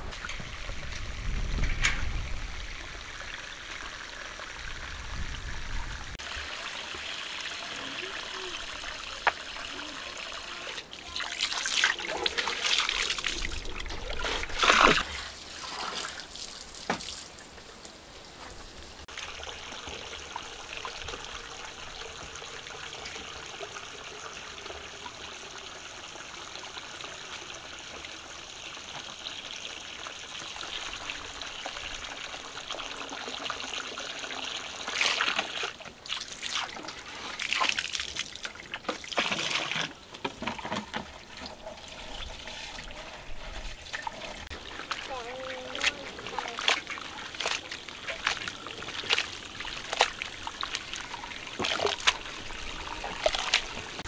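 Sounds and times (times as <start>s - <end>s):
water trickling: 18.7s - 54.0s
bursts of water: 41.2s - 54.0s.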